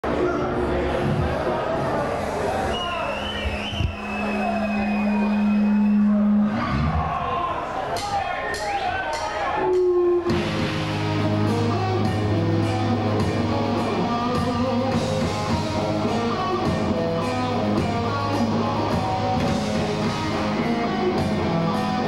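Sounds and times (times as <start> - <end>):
bass guitar: 3.5 - 7.3, 9.6 - 22.0
distorted electric guitars: 4.0 - 7.2, 9.6 - 22.0
drum kit: 8.0 - 22.0.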